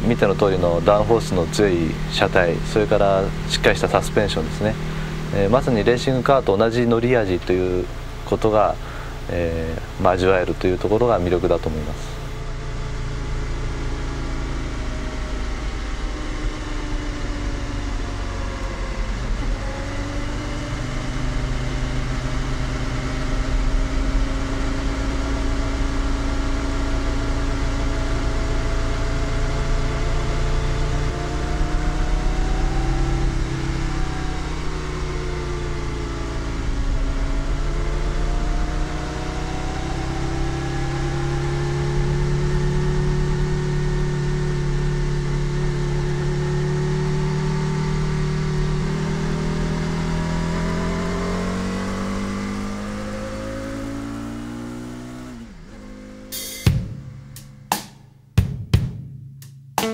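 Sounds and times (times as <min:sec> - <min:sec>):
car engine running at speed: 0:00.0 - 0:58.4.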